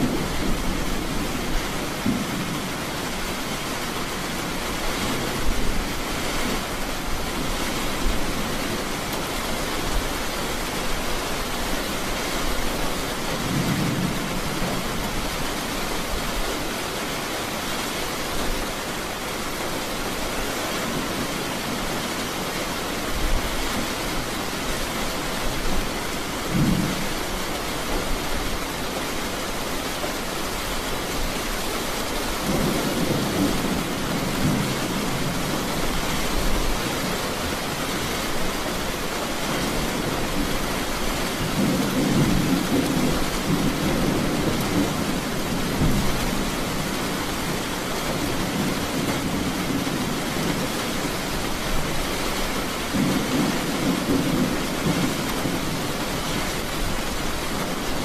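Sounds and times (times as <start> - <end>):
thunder rumbling: 0.0 - 6.8, 32.4 - 37.3, 39.0 - 51.4, 52.0 - 57.8
heavy rain: 0.0 - 58.0.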